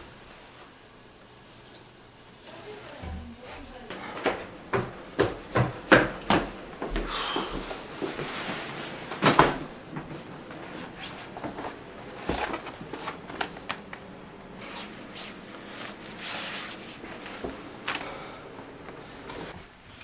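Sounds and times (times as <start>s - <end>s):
clothes rustling: 6.8s - 19.6s.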